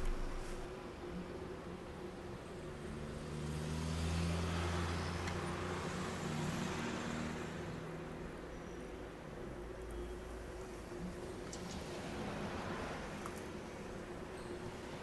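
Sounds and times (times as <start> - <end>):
vehicle engine rumble: 0.0 - 0.9
road noise: 0.0 - 15.0.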